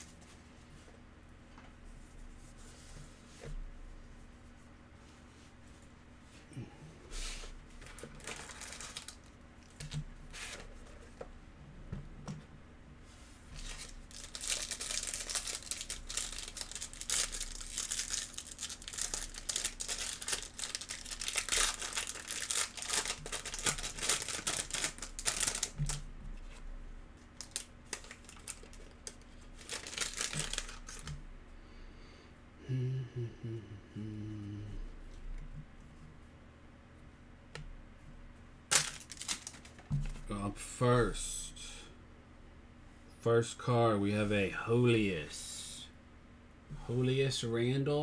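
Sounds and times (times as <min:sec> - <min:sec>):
foil wrapper tearing and crinkling: 0:07.8 - 0:10.0, 0:13.6 - 0:26.0, 0:27.4 - 0:31.1, 0:38.7 - 0:39.8.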